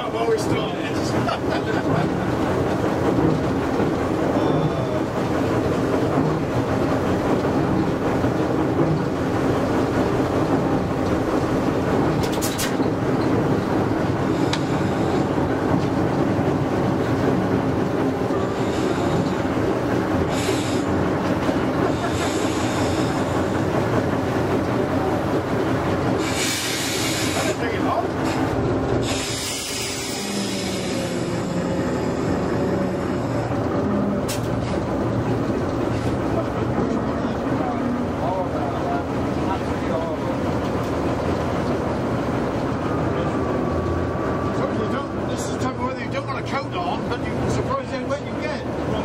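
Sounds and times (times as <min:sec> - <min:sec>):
diesel locomotive engine running: 0:00.0 - 0:49.0
train wheels rolling on track: 0:00.0 - 0:49.0
short hisses: 0:26.2 - 0:27.6, 0:28.2 - 0:31.4.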